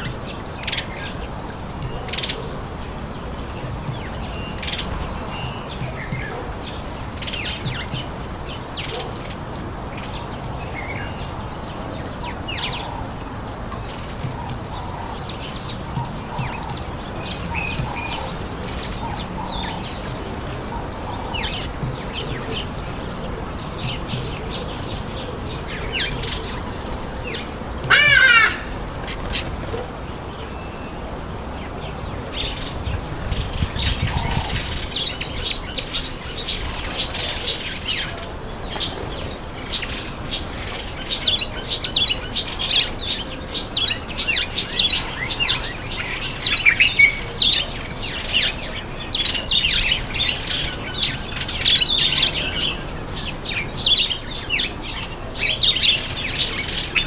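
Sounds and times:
birds chirping and calling: 0.0 - 57.0
loud warbling bird call: 27.9 - 28.8.

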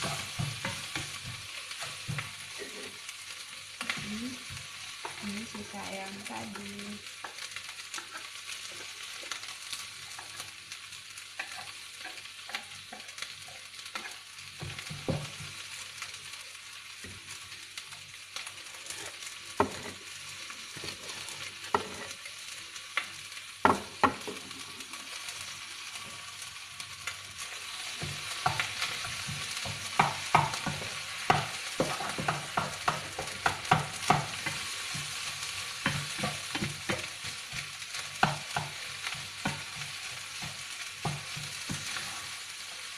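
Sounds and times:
wooden spatula scraping a pan: 0.0 - 3.0, 11.4 - 15.5, 18.7 - 20.0, 20.6 - 22.2, 27.4 - 42.4
food sizzling in a pan: 0.0 - 42.9
spatula knocking against pan: 28.1 - 35.2.

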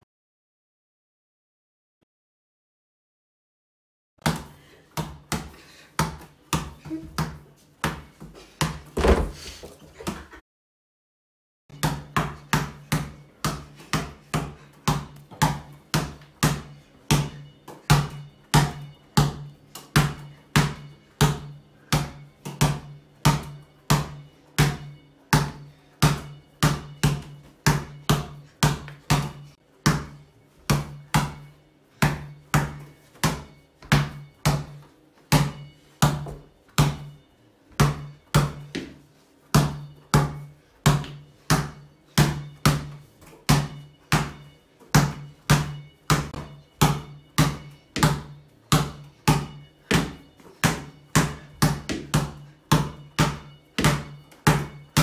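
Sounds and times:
basketball bouncing on tiles: 4.2 - 10.4, 11.7 - 38.9, 39.5 - 55.0.

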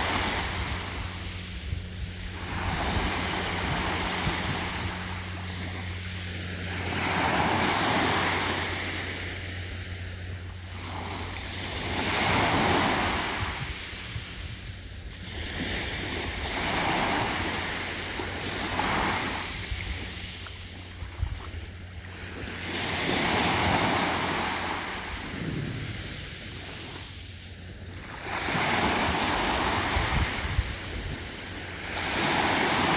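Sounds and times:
waves washing up a beach: 0.0 - 32.9.

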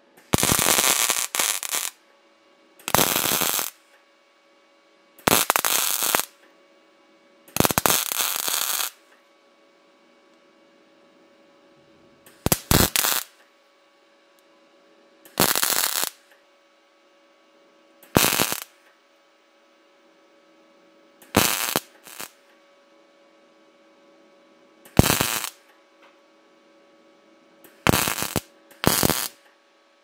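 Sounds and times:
arc welding crackling sizzle: 0.0 - 2.0, 2.8 - 3.8, 5.2 - 6.4, 7.5 - 9.0, 12.2 - 13.4, 15.2 - 16.2, 18.0 - 18.9, 21.2 - 22.5, 24.9 - 25.7, 27.6 - 29.5
steady faint hum: 0.0 - 30.0.

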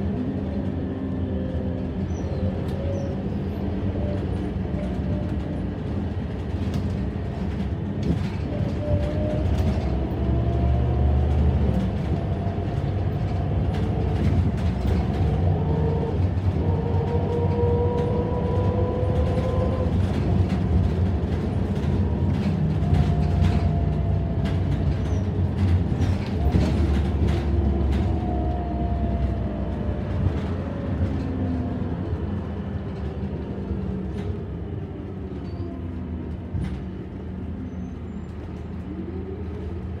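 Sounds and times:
bus diesel engine drone: 0.0 - 40.0
engine whine: 0.0 - 40.0
rattles and clicks: 11.2 - 34.4.

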